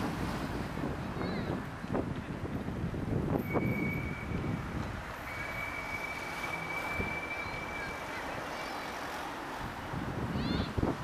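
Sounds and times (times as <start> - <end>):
city traffic rumble: 0.0 - 11.0
thin high tone: 5.2 - 9.0.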